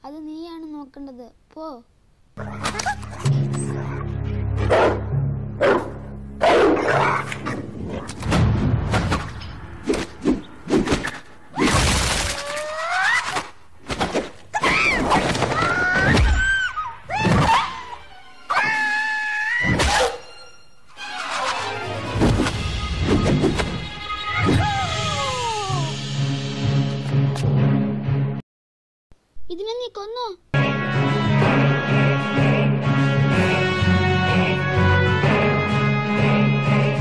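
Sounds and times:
soundtrack music: 2.4 - 9.9, 19.7 - 28.4.

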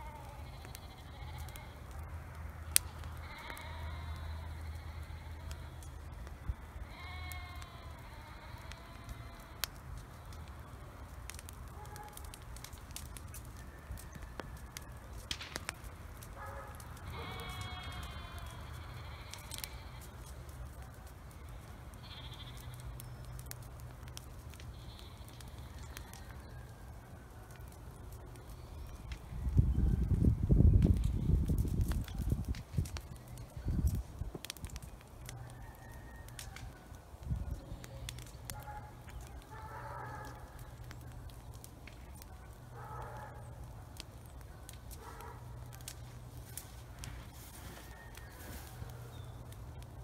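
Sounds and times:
livestock bleating: 0.0 - 1.8, 3.2 - 5.9, 6.9 - 9.6, 17.0 - 20.3, 22.0 - 22.9
brush fire popping and crackling: 0.0 - 50.0.

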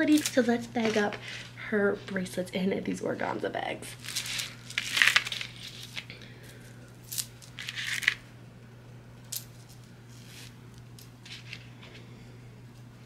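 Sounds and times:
beads rattling: 4.0 - 6.0.

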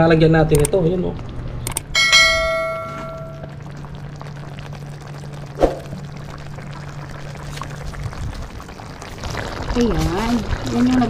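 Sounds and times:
steady low hum: 1.1 - 10.7
metal pan ringing: 2.0 - 3.6.

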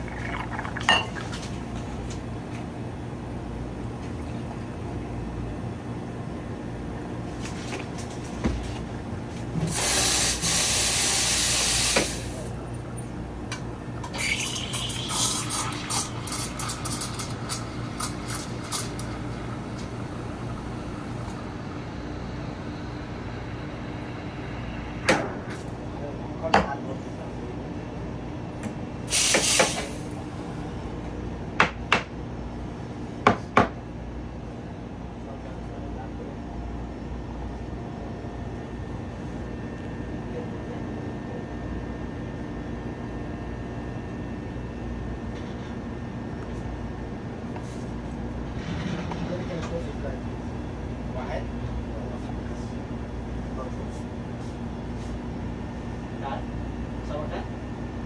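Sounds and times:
machinery rumble and hum: 12.0 - 29.1, 29.8 - 58.0.

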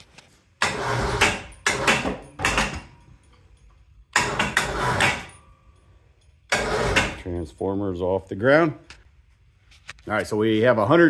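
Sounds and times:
hoist mechanical noise: 4.1 - 5.5, 6.5 - 7.3.

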